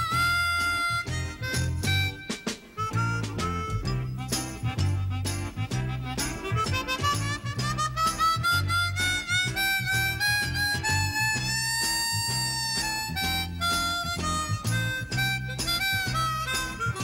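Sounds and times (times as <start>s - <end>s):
bass line: 0.0s - 17.0s
harmonica melody: 0.0s - 17.0s.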